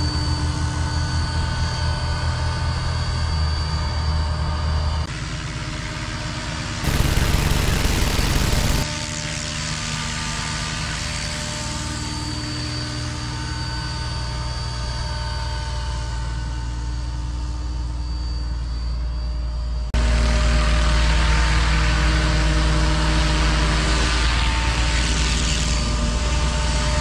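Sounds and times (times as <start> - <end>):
rc helicopter motor whine: 0.1 - 18.8.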